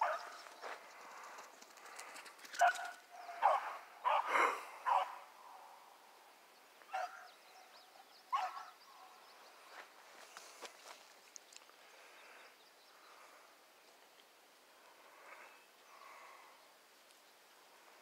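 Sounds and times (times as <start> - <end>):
hound barking: 0.0 - 0.4, 2.6 - 5.3, 6.9 - 7.3, 8.3 - 9.1.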